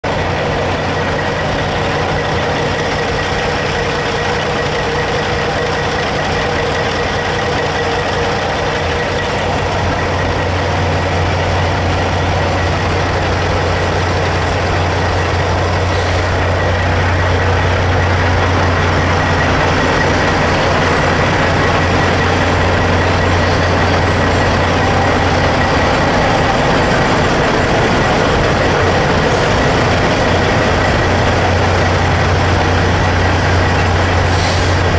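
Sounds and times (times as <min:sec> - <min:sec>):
truck diesel engines idling: 0:00.0 - 0:34.9
faint high tone: 0:23.0 - 0:28.1.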